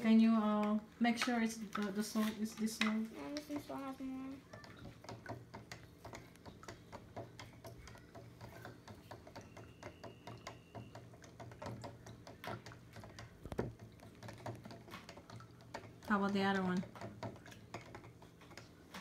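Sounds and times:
plastic spoon ticking in cup: 0:02.5 - 0:18.7.

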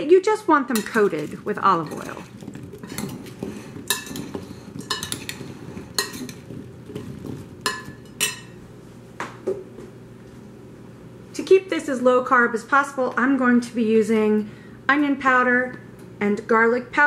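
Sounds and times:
spoon clinking on a ceramic bowl: 0:03.9 - 0:05.4, 0:07.7 - 0:08.5.

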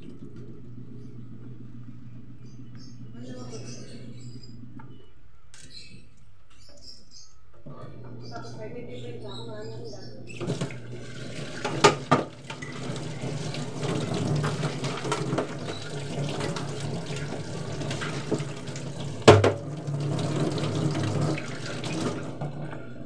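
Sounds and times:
tap water running into sink: 0:00.0 - 0:01.9, 0:10.4 - 0:23.0
hands washing under water: 0:10.4 - 0:22.9
sharp knocks: 0:19.3 - 0:19.6.

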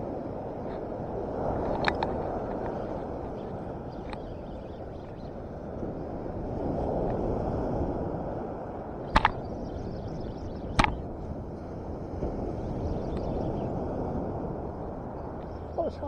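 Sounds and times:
wind: 0:00.0 - 0:16.0
sharp clicks: 0:09.1 - 0:09.5, 0:10.6 - 0:11.0.

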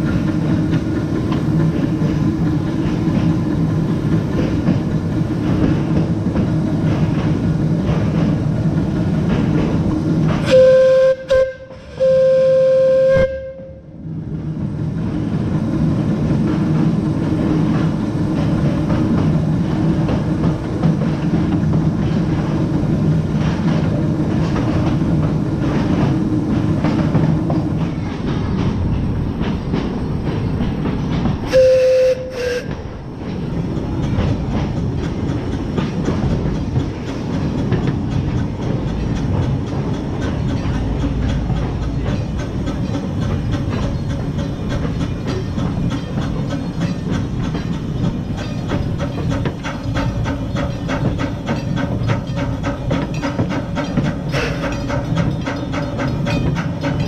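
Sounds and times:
train rumbling and clattering: 0:00.0 - 0:57.0
steam whistle blasts: 0:10.5 - 0:13.9, 0:31.5 - 0:32.8.

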